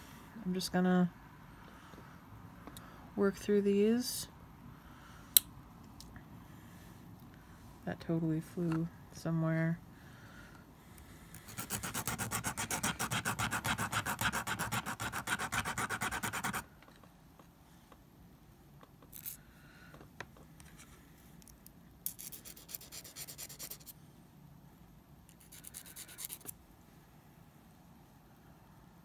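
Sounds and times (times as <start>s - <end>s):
nail file rasping on shell: 11.3s - 16.6s, 22.1s - 24.0s, 25.3s - 26.6s.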